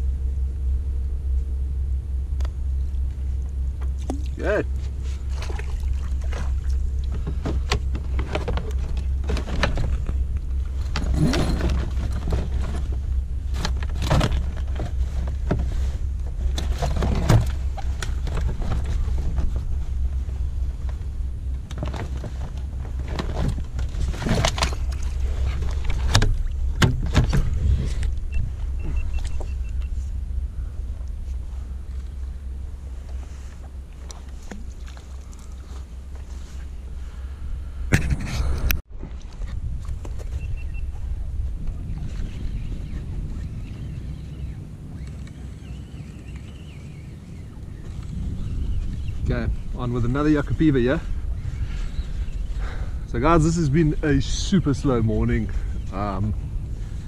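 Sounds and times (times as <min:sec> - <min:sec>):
steady low rumble: 0:00.0 - 0:57.0
knocks and scrapes on plastic kayak: 0:06.2 - 0:21.0, 0:21.7 - 0:28.2.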